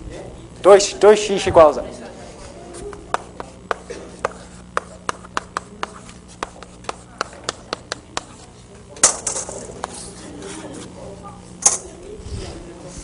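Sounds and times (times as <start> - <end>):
chalk tapping on chalkboard: 2.9 - 8.5, 9.1 - 10.1
scratchy chalk stroke: 3.1 - 8.5.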